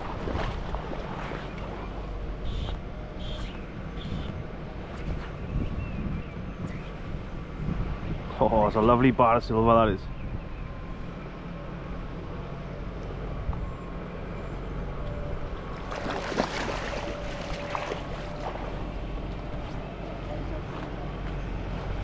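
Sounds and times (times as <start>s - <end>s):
wind rumble on microphone: 0.0s - 11.3s
fish splashing in water: 15.7s - 19.0s.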